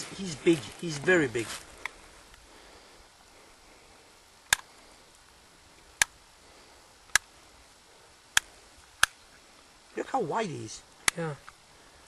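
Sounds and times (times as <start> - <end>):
sharp short clicks: 4.5 - 4.7.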